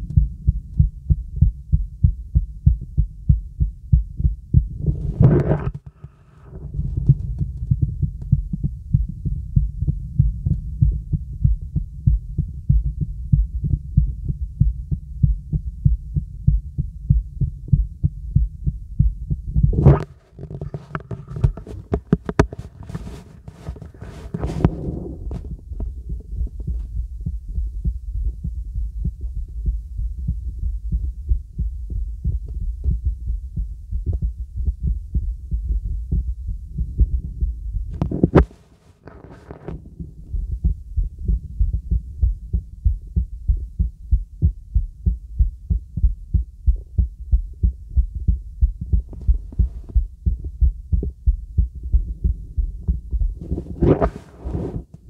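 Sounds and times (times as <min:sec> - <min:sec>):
heartbeat thumps: 0:00.0 - 0:55.0
stethoscope scraping and rubbing: 0:04.8 - 0:06.8, 0:19.7 - 0:25.6, 0:37.9 - 0:39.9, 0:53.4 - 0:55.0.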